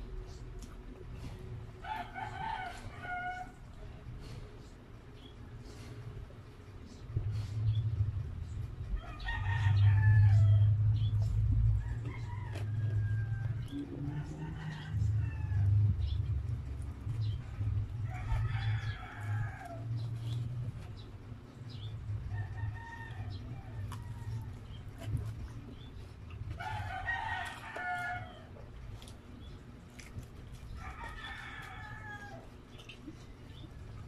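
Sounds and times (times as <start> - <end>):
close chewing and mouth clicks: 0.0 - 4.6, 5.2 - 34.0
rooster crowing: 1.8 - 3.6, 9.0 - 10.9, 11.7 - 15.9, 18.0 - 20.0, 26.6 - 28.5, 30.8 - 32.5.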